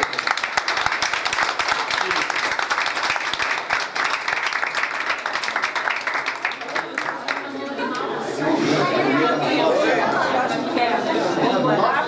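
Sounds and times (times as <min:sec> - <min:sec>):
crowd applauding: 0:00.0 - 0:08.1
crowd voices: 0:06.5 - 0:12.0.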